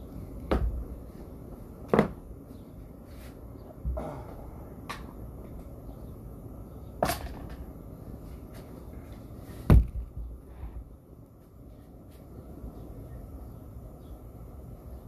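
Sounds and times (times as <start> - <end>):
steady low rumble: 0.0 - 15.0
sharp knocks: 9.7 - 10.2.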